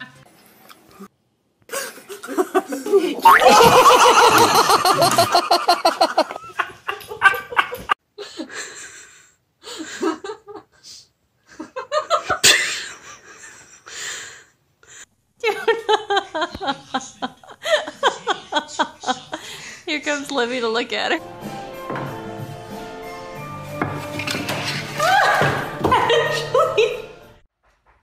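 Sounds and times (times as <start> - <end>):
person laughing: 1.7 - 8.0, 25.0 - 27.2.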